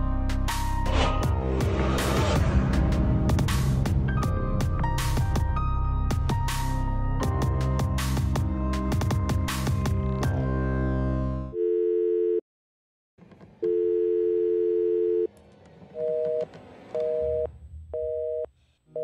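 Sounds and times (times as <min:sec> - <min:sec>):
telephone line tone: 0:11.5 - 0:12.4, 0:13.6 - 0:15.3, 0:17.0 - 0:18.5.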